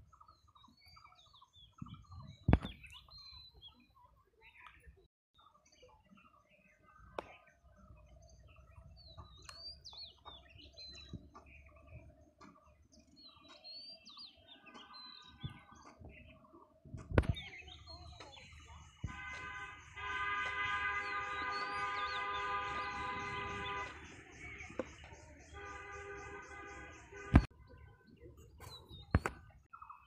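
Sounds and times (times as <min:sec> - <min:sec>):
birds chirping and calling: 0:00.0 - 0:30.0
loud horn-like tone: 0:19.1 - 0:24.1, 0:25.6 - 0:27.5.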